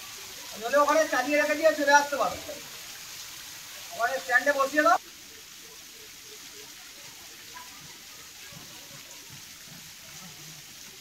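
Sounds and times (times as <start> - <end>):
waterfall splashing on rock: 0.0 - 11.0
faint voices: 3.6 - 11.0.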